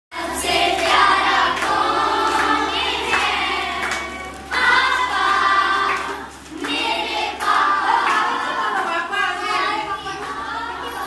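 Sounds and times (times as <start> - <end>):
women and children singing: 0.1 - 11.0
hand clapping: 0.5 - 9.0.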